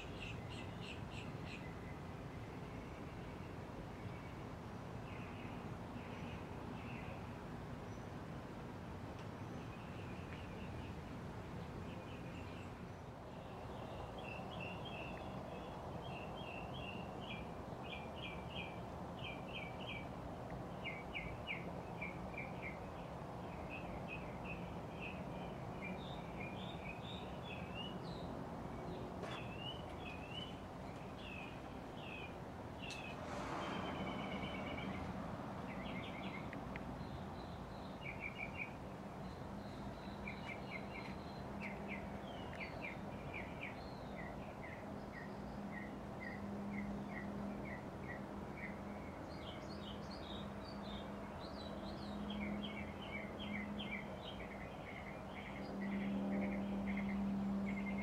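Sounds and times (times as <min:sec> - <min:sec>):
small birds chirping: 0:09.2 - 0:58.0
brief rush of noise: 0:33.0 - 0:34.8.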